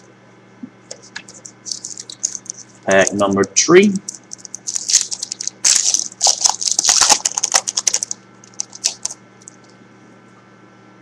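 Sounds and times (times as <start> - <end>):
card pack wrapper crinkling and tearing: 0.9 - 3.2, 3.9 - 9.2.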